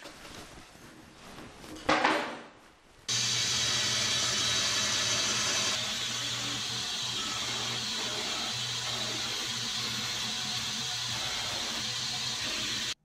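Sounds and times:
bandsaw blade hissing: 3.1s - 13.0s
bandsaw motor hum: 3.1s - 13.0s.

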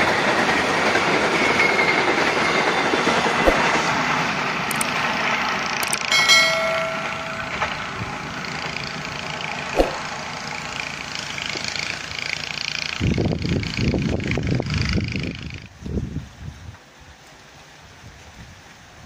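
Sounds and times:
train wheel and rail noise: 0.0s - 19.0s
brief ringing tone: 6.1s - 8.2s.

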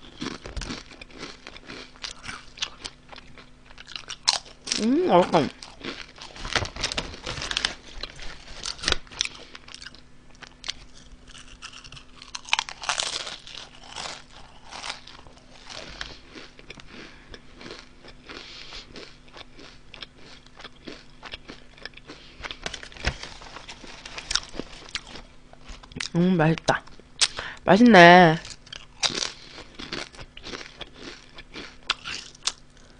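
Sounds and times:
chip bag crinkling: 0.0s - 4.9s, 5.5s - 26.0s
crunching potato chips: 0.0s - 26.2s, 28.4s - 32.9s.

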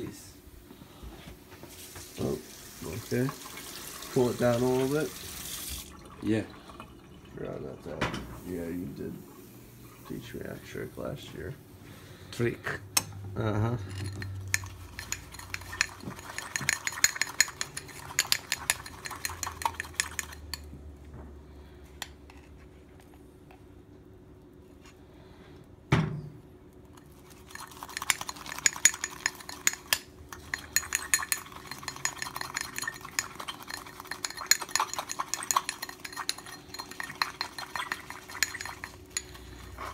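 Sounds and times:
metal spoon clinking against glass: 13.9s - 20.7s, 27.5s - 39.8s
thump: 25.9s - 26.3s.

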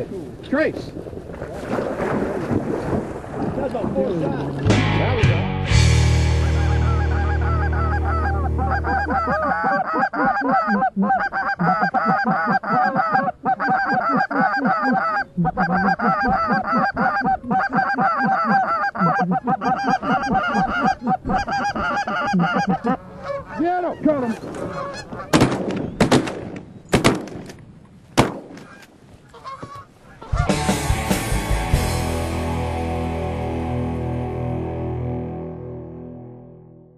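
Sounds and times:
geese honking: 6.2s - 25.4s, 28.6s - 31.0s
shotgun shots: 25.3s - 27.6s, 28.2s - 28.8s.

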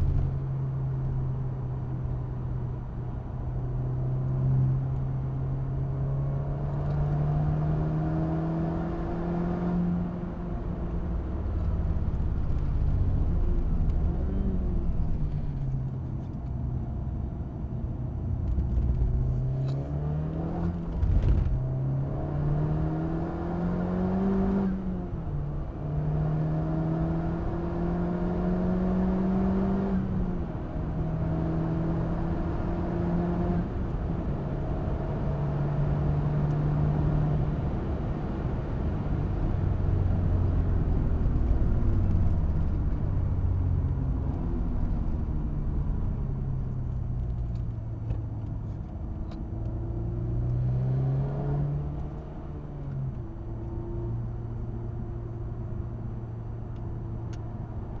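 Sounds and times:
car engine accelerating: 18.4s - 58.0s.

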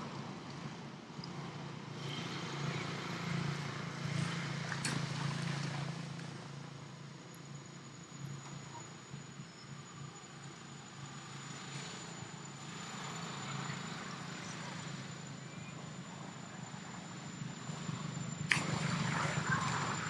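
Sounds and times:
steady low hum: 12.2s - 20.0s.

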